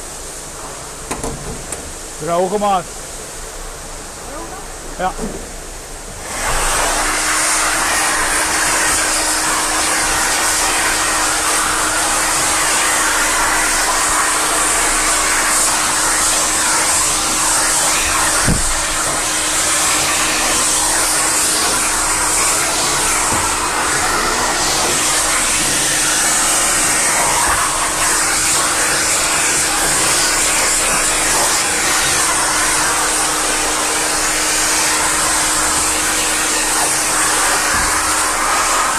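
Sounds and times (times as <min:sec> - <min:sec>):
blower dryer rushing hiss: 0:00.0 - 0:38.9
thump: 0:01.1 - 0:01.9, 0:18.4 - 0:18.8, 0:37.7 - 0:38.0.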